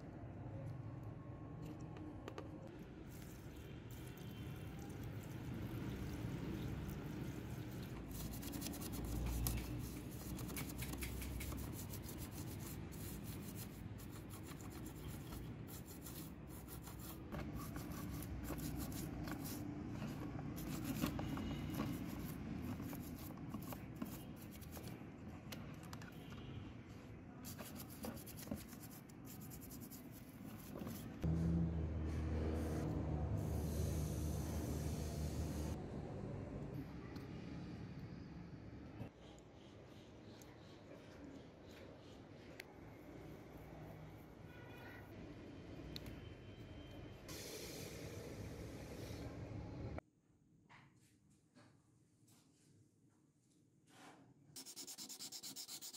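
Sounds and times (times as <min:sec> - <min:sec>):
toothbrush scrubbing metal: 0:03.2 - 0:19.7, 0:54.6 - 0:55.9.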